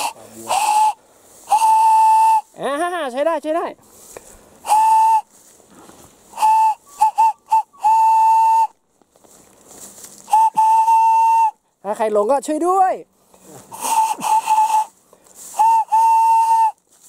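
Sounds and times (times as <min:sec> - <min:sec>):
whistle blasts: 0:00.0 - 0:02.6, 0:04.6 - 0:05.3, 0:06.3 - 0:08.8, 0:10.2 - 0:11.6, 0:13.8 - 0:14.9, 0:15.5 - 0:16.8.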